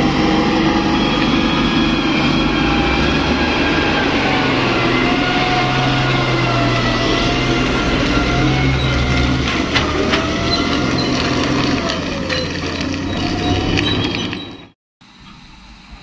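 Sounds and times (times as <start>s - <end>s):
truck engine drone with whine: 0.0s - 16.0s
knocks and rattles: 7.8s - 14.7s.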